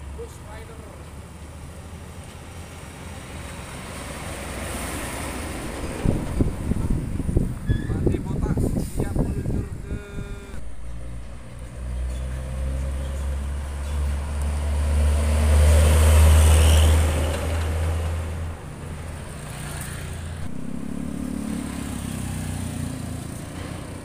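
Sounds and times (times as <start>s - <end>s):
truck passing: 0.0s - 8.2s, 9.8s - 24.0s
truck engine running: 17.4s - 24.0s.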